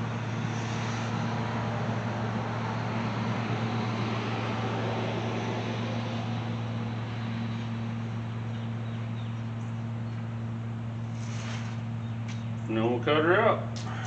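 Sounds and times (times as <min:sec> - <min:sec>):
passing road traffic: 0:00.0 - 0:14.0
steady low hum: 0:00.0 - 0:14.0.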